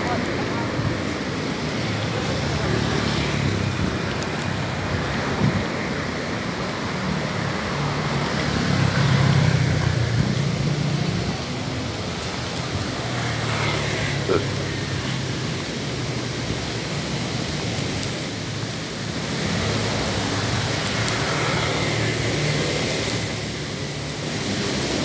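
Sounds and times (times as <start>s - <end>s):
car engines and tyres passing: 0.0s - 25.0s
louder vehicle passing: 4.6s - 15.6s.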